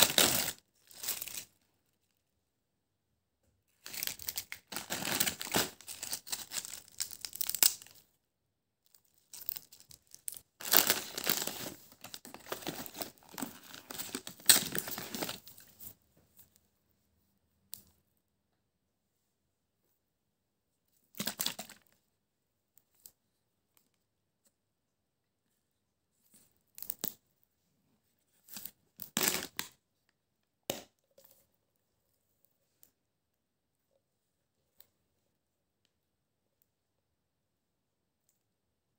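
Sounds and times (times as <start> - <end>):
plastic crisp packet crinkling: 0.0 - 1.5, 3.8 - 8.0, 9.2 - 15.5.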